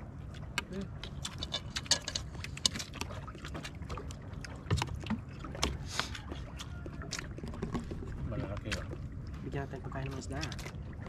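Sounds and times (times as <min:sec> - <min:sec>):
water sloshing against boat: 0:00.0 - 0:11.0
steady low rumble: 0:07.2 - 0:11.0.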